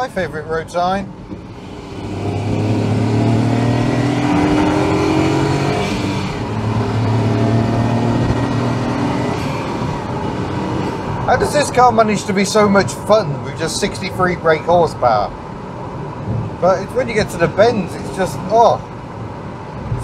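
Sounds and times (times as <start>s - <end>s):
car engine accelerating: 1.4s - 12.1s.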